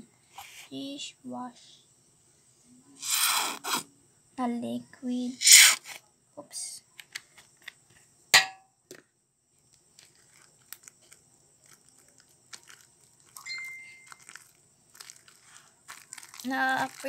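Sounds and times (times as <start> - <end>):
sharp knock: 8.4 - 8.6
small clicks and pops: 9.7 - 13.5.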